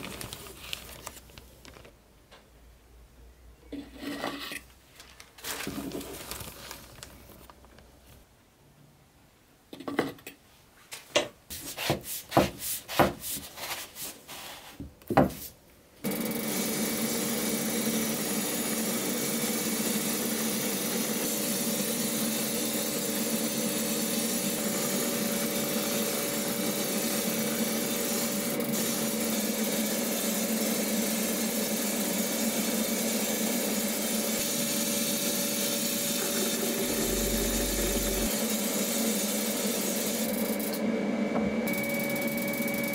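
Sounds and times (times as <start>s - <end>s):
metal spoon scraping plastic cup: 3.8s - 4.7s
powder spray gun hissing: 35.8s - 38.4s.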